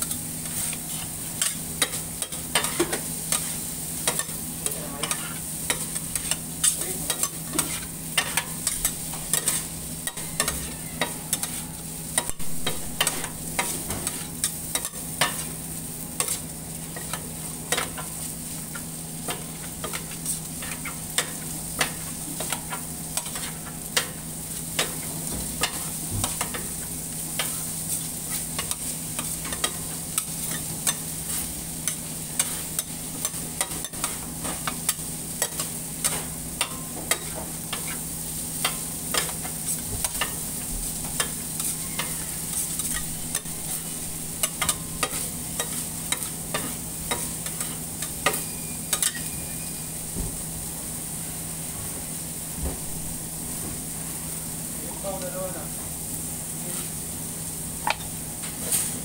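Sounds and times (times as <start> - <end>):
food sizzling: 0.0 - 59.0
metal spatulas clacking on griddle: 44.4 - 49.3.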